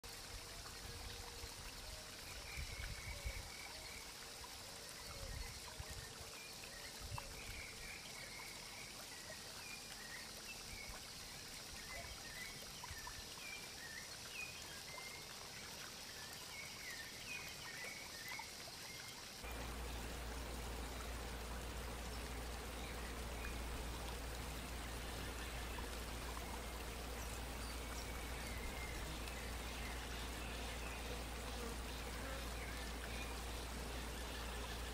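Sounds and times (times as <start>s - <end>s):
outdoor background hiss: 0.0s - 34.9s
low steady hum: 19.4s - 34.9s.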